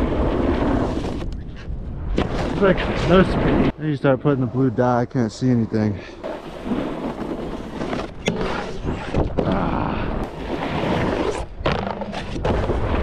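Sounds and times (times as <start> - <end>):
snowboard scraping on snow: 0.0 - 1.3, 2.2 - 4.7, 5.4 - 9.2, 10.2 - 13.0.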